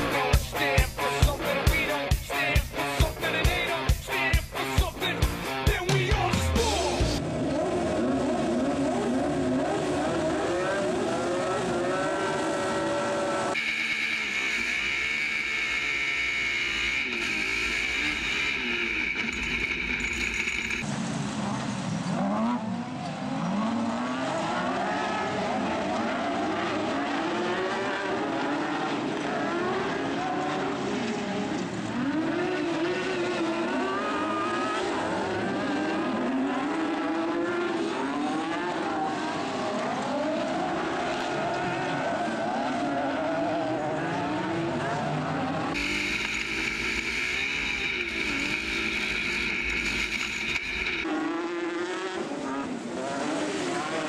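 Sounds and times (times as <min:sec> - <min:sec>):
racing buggy engines: 0:00.0 - 0:54.0
close-up engine whine and rumble: 0:12.8 - 0:22.1, 0:45.2 - 0:51.1.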